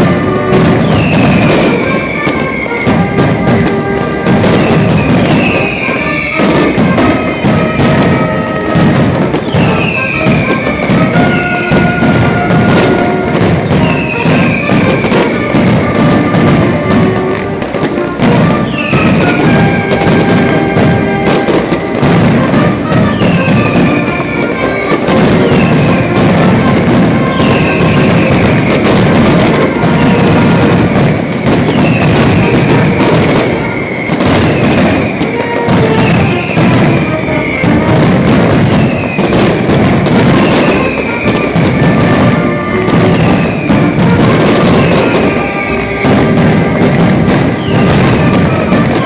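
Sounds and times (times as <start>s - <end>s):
firecrackers banging rapidly: 0.0s - 49.0s
whistling firecrackers shrieking: 0.0s - 49.0s.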